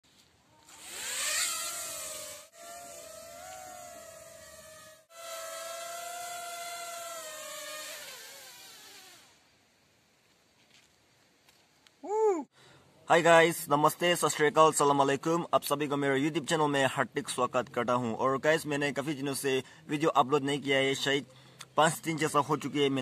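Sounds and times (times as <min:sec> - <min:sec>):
toy drone propellers whining: 0:00.6 - 0:09.4.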